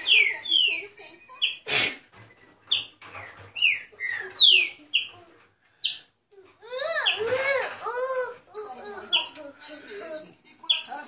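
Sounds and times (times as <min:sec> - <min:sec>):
bird whistling song: 0:00.0 - 0:00.8, 0:02.7 - 0:05.1.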